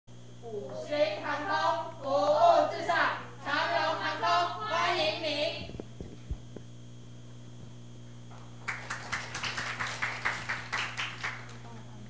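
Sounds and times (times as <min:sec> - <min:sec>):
room hum: 0:00.1 - 0:12.0.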